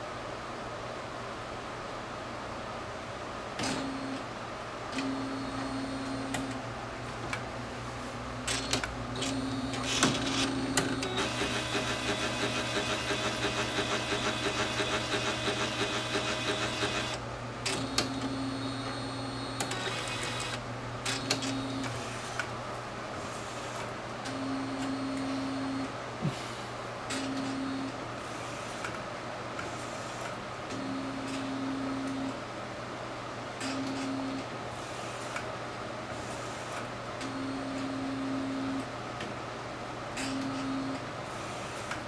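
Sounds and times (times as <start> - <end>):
printer low hum: 3.3 - 42.0
printer motor whine: 3.6 - 4.3, 4.9 - 6.7, 8.5 - 22.4, 24.2 - 26.0, 27.1 - 28.9, 30.0 - 32.5, 33.6 - 34.5, 37.1 - 39.0, 40.2 - 41.4
rhythmic mechanical pulsing: 8.5 - 17.2.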